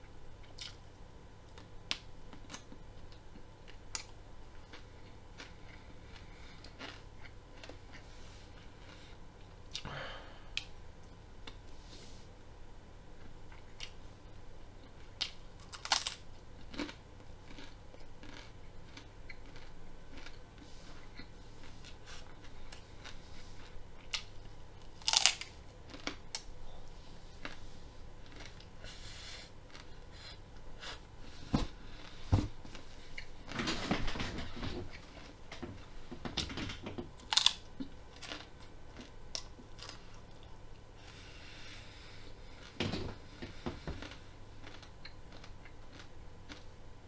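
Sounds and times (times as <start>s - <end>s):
crunching raw broccoli: 3.7s - 9.1s, 14.8s - 31.0s, 37.2s - 40.5s, 44.0s - 46.7s.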